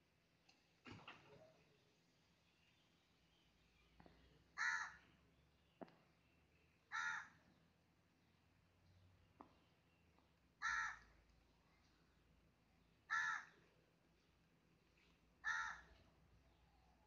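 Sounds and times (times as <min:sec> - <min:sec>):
crow cawing: 0:04.6 - 0:05.0, 0:06.9 - 0:07.4, 0:10.6 - 0:11.1, 0:13.1 - 0:13.6, 0:15.4 - 0:15.9.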